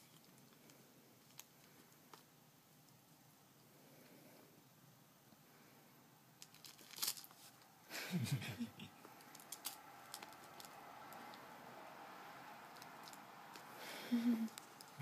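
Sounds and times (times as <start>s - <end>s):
rustling and crinkling: 0.0s - 3.0s, 6.4s - 7.8s, 9.0s - 11.5s, 12.7s - 15.0s.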